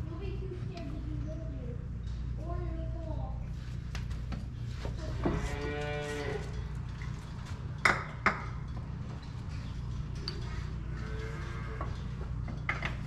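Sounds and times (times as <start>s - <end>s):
cow mooing: 5.4s - 6.6s, 10.8s - 12.1s.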